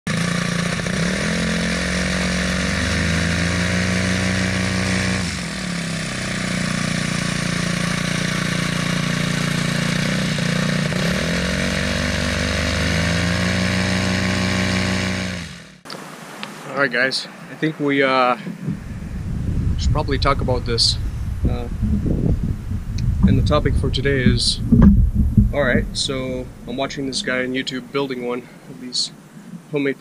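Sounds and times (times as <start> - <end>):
small engine running hard: 0.1 - 15.8.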